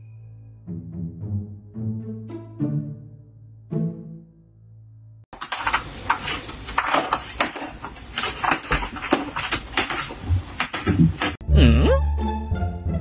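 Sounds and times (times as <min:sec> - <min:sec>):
cat claws scratching curtains: 0:05.4 - 0:11.4.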